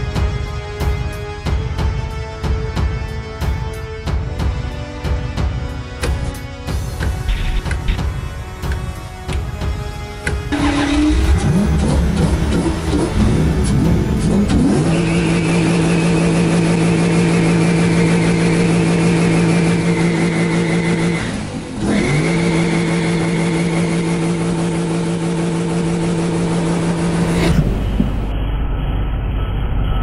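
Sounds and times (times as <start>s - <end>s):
car engine revving: 10.5s - 28.3s.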